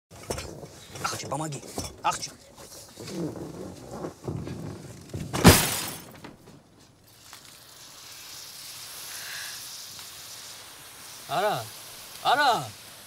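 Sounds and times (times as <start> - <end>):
glass bottles crashing: 5.2 - 6.4
faint hiss: 5.4 - 13.0.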